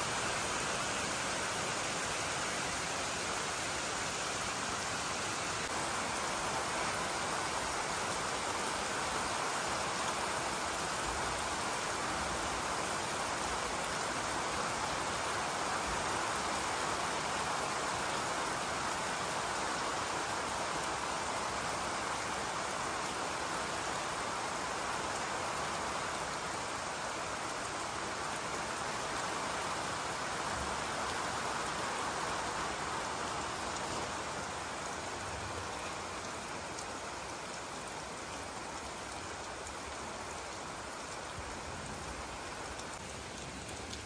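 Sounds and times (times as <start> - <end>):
rain falling on grass and trees: 0.0 - 44.0.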